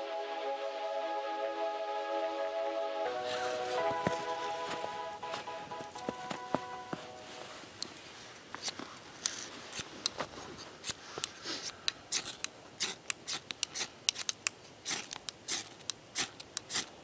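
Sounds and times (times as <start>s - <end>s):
striker scraping ferro rod: 12.1s - 16.9s.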